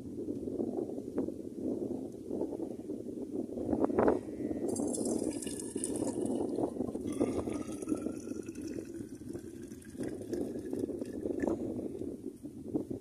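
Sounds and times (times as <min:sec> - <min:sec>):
water pouring into thermos: 0:04.7 - 0:11.6.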